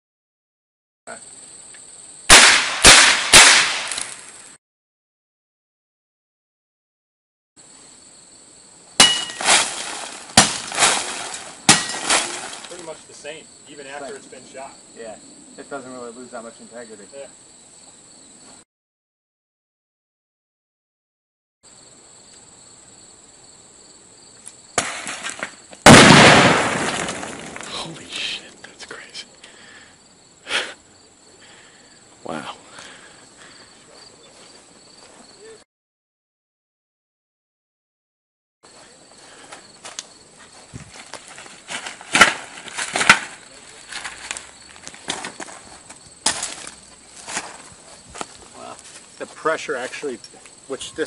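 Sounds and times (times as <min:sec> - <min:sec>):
explosive blast: 0:02.3 - 0:04.1, 0:25.8 - 0:27.6
sharp crack: 0:02.3 - 0:04.6, 0:09.0 - 0:13.0, 0:24.4 - 0:28.7, 0:41.7 - 0:45.6, 0:46.2 - 0:47.6
high insect buzz: 0:07.6 - 0:18.6, 0:21.7 - 0:35.6, 0:38.7 - 0:50.7.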